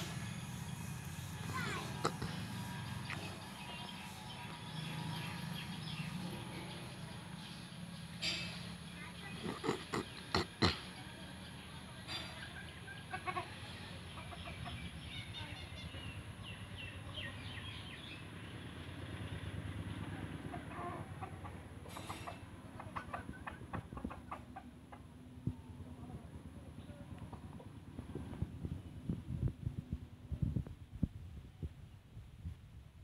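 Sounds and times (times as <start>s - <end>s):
steady low hum: 0.0s - 12.8s
chickens clucking: 1.5s - 4.6s, 9.2s - 11.0s, 12.0s - 15.1s, 20.4s - 25.2s.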